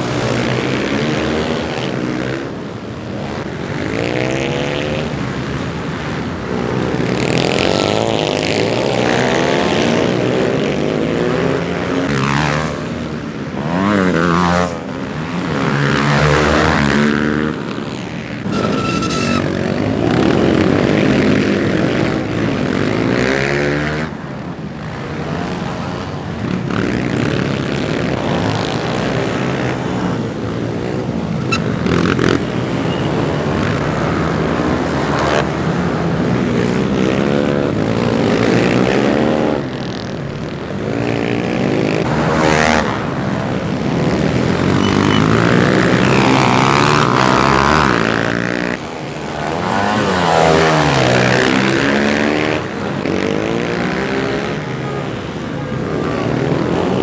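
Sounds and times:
motorcycle engines revving: 0.0 - 57.0.

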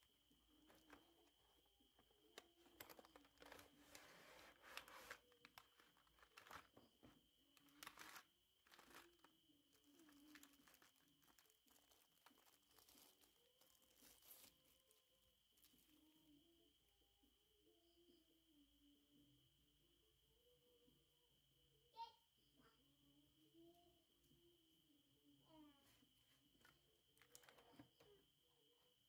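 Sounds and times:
packaging scraping and crinkling: 0.0 - 6.8, 7.6 - 14.9.

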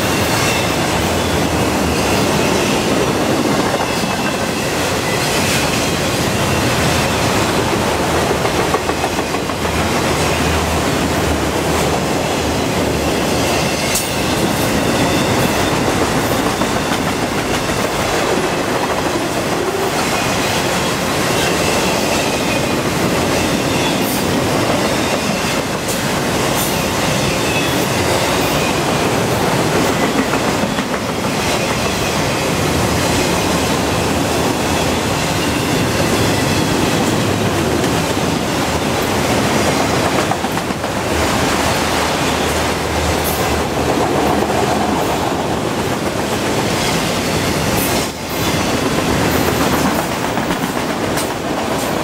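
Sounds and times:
train wheels rumbling on rails: 0.0 - 52.0
clacks over rail joints: 47.7 - 52.0.

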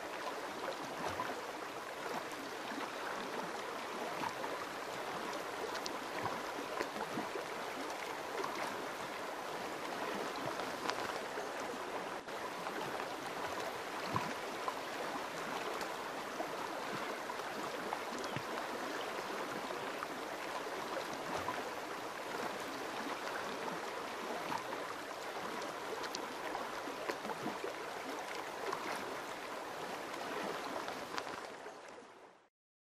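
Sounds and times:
small splashes and gurgles: 0.0 - 32.0
river water flowing: 0.0 - 32.5.

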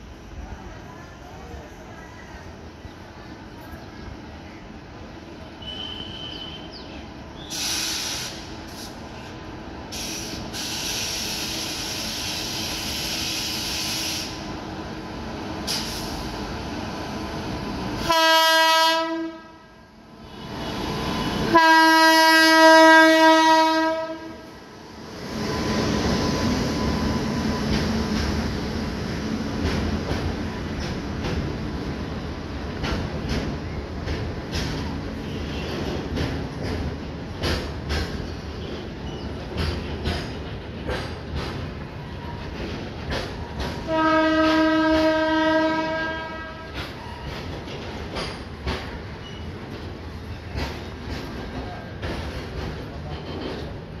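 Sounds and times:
train horn blasts: 5.6 - 6.7, 18.0 - 19.8, 21.5 - 24.5, 43.8 - 46.8.

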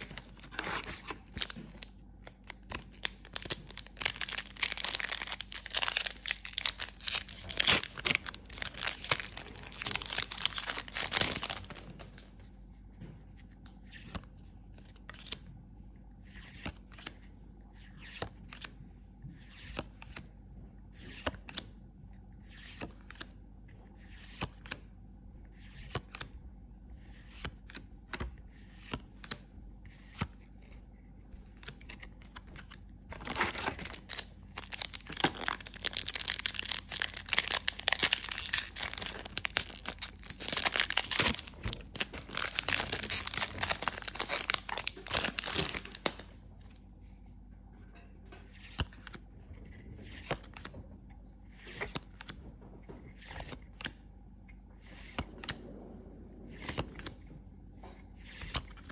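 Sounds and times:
foil wrapper tearing and crinkling: 3.1 - 11.8, 33.2 - 46.2.

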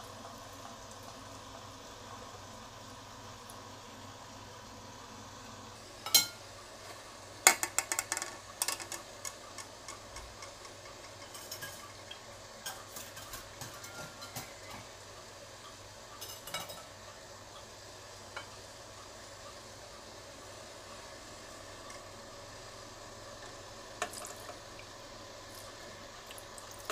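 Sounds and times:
metal strainer and tin clattering: 7.5 - 11.9, 12.7 - 14.6.

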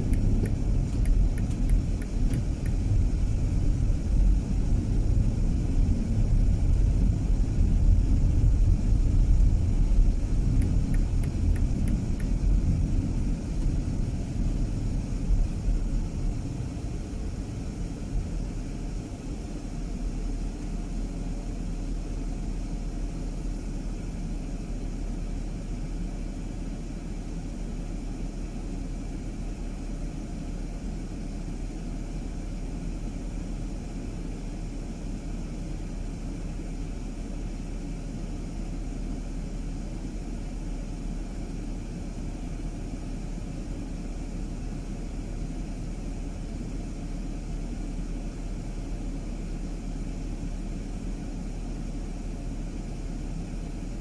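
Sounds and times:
car road and engine rumble: 0.0 - 54.0.

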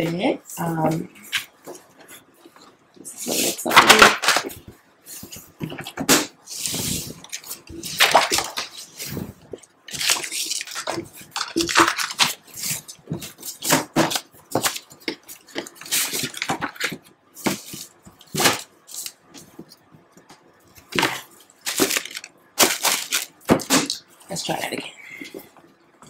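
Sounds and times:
stiff paper rustling and crinkling: 3.3 - 19.7, 20.8 - 24.0.

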